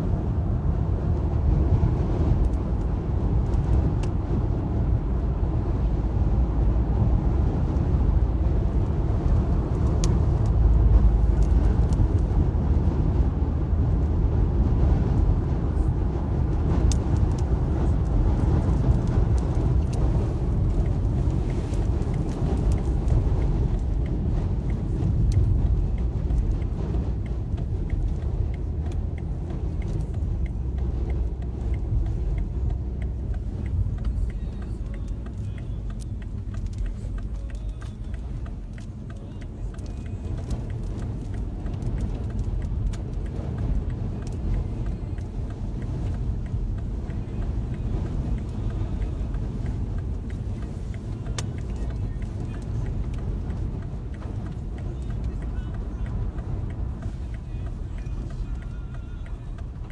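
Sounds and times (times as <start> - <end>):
car engine and road noise: 0.0 - 59.9.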